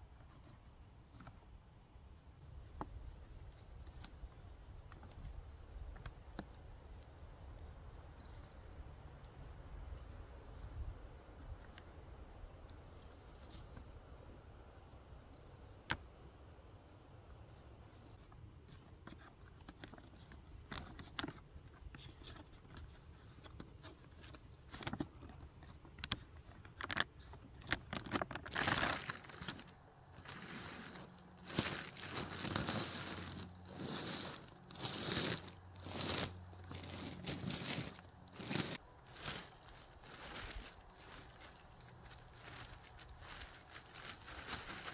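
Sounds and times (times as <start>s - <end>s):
plastic tarp crinkling: 27.9s - 44.9s.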